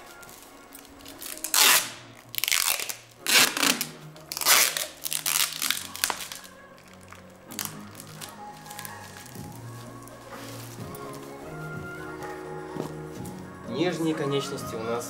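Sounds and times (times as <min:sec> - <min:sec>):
adhesive tape ripping off roll: 0:00.0 - 0:11.6.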